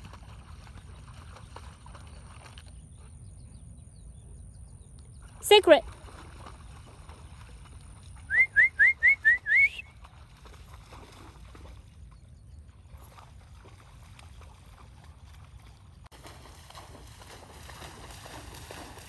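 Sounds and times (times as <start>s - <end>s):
person whistling rising notes: 8.3s - 9.8s.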